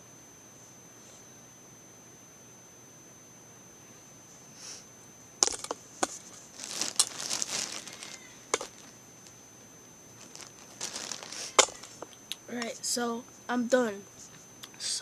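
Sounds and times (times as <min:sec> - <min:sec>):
faint high whine: 0:00.0 - 0:15.0
rustling and scraping: 0:05.4 - 0:09.4, 0:10.2 - 0:12.2.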